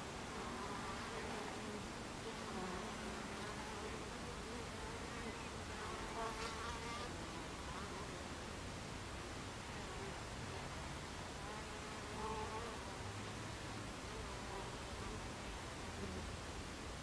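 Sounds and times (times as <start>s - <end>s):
honeybees buzzing: 0.1s - 8.2s.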